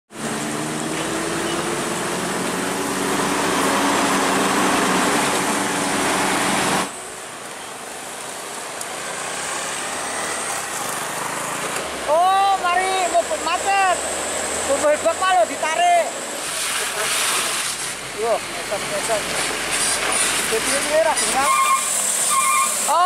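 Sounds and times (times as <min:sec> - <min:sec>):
loud mechanical noise: 0:00.1 - 0:07.2, 0:09.2 - 0:12.1, 0:13.0 - 0:23.0
diesel engine labouring: 0:00.1 - 0:07.8
distant truck traffic: 0:00.1 - 0:23.0.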